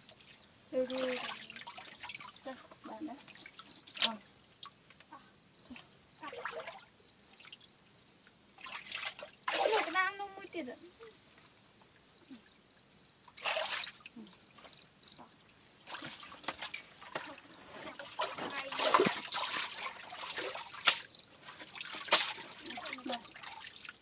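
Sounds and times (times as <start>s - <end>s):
hands splashing in muddy water: 13.4s - 14.0s, 15.8s - 24.0s.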